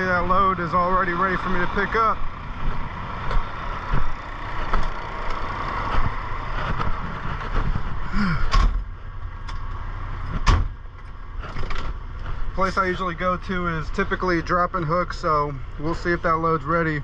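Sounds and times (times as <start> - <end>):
truck engine running: 0.0 - 17.0
sharp knocks: 10.3 - 10.8.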